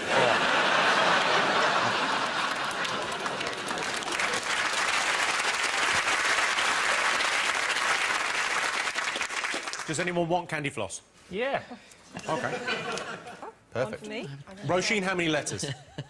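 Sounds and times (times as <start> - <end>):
studio audience applauding: 0.0 - 10.1.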